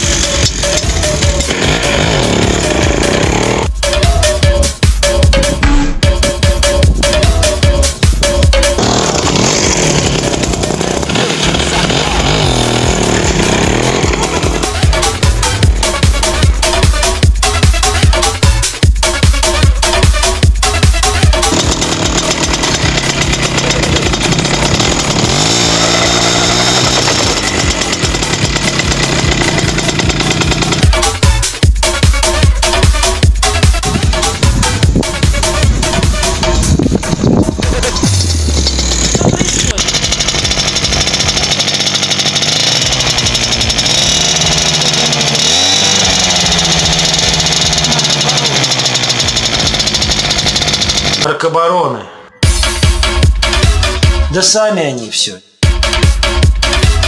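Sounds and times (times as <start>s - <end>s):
wheel spinning on dirt: 0.0s - 3.7s, 8.6s - 15.8s, 20.9s - 31.5s, 33.8s - 51.3s
moped engine revving: 0.0s - 51.4s.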